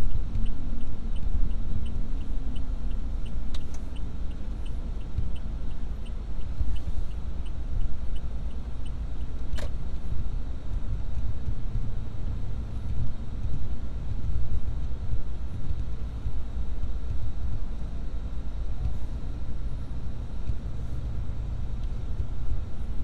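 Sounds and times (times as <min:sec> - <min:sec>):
car engine rumble: 0:00.0 - 0:23.0
road noise inside car: 0:00.0 - 0:23.0.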